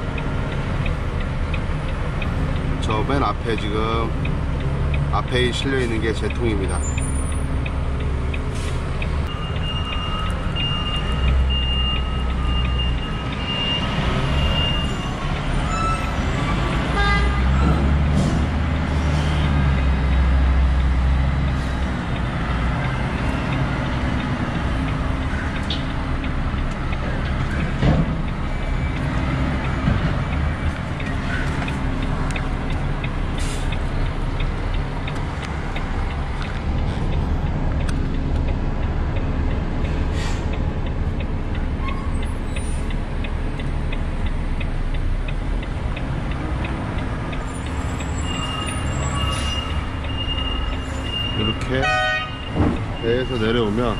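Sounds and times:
truck diesel engine rumbling: 0.0 - 53.9.

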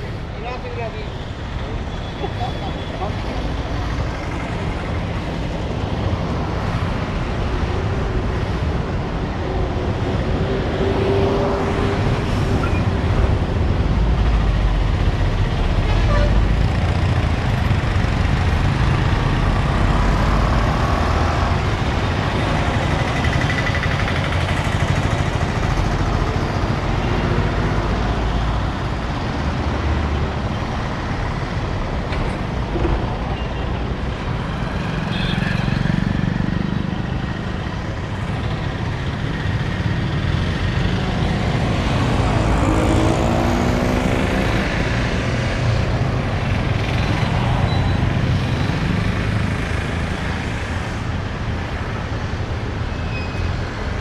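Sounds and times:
low traffic rumble: 0.0 - 54.0
vehicle engines passing: 0.0 - 54.0.

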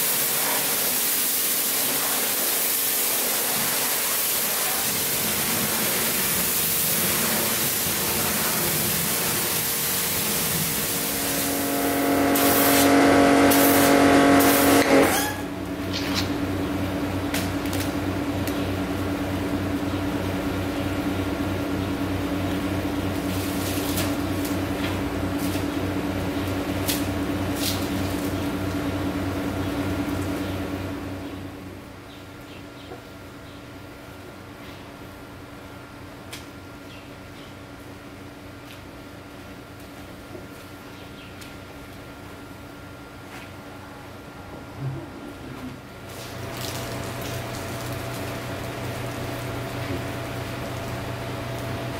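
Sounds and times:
pressure washer spraying water: 0.0 - 16.3, 46.1 - 50.8
machine hum: 4.8 - 36.7, 41.6 - 51.9.

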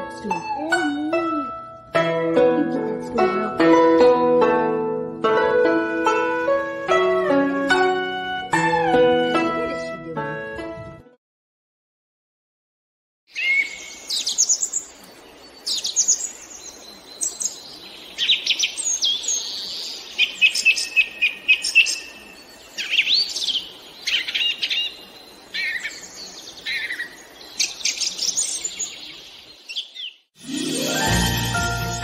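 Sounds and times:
songbirds chirping and singing: 13.3 - 30.3.

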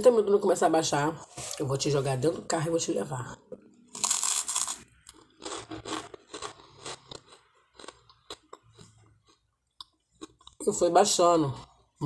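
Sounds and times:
crunchy chewing: 3.9 - 10.6
toast crunching: 3.9 - 10.6.

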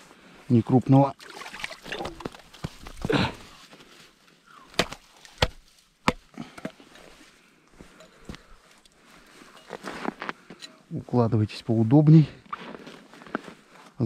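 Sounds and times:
rustling and scuffing on snow: 2.5 - 4.3, 7.0 - 14.0.

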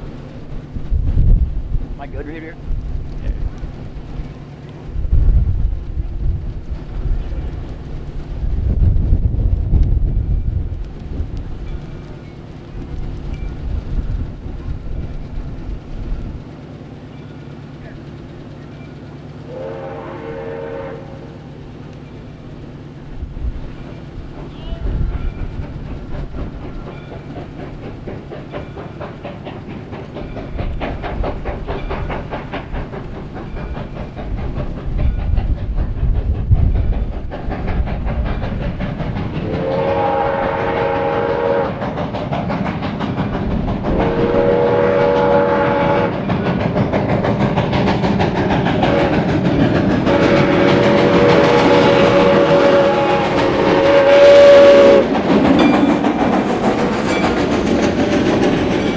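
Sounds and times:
steam locomotive exhaust chuffing: 0.0 - 58.9
steam whistle blasts: 19.5 - 21.3, 39.4 - 41.8, 43.9 - 46.2, 50.0 - 55.1.

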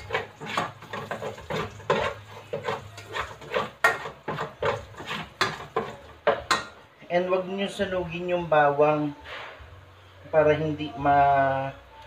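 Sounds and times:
garlic frying in oil: 0.0 - 6.7
spatula scraping a pot: 0.0 - 6.8.

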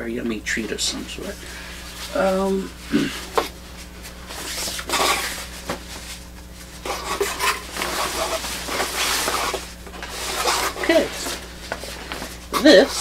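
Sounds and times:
cloth rustling and swishing: 3.6 - 13.0.

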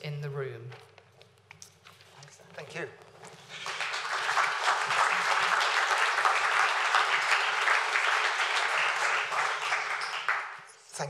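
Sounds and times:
audience applauding: 3.2 - 10.8.

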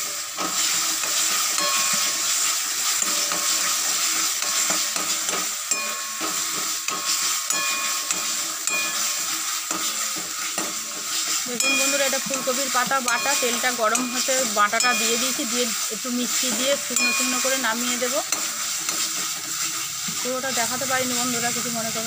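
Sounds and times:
paste sizzling in hot oil: 0.0 - 22.0
metal ladle scraping pan: 0.2 - 21.8
ladle clinking against pan: 1.6 - 2.2, 5.7 - 10.8.

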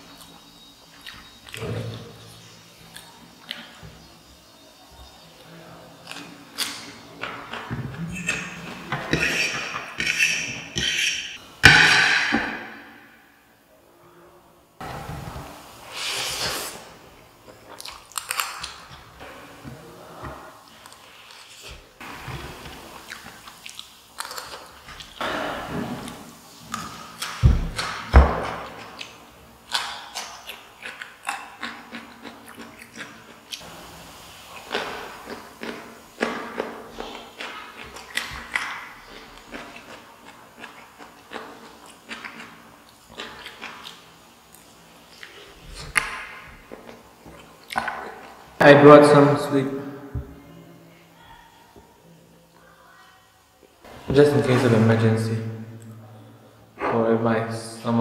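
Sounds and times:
fork scraping ceramic plate: 8.1 - 11.4
person chewing crunchy food: 17.4 - 19.1, 22.6 - 25.2, 28.9 - 33.7, 34.4 - 48.4.

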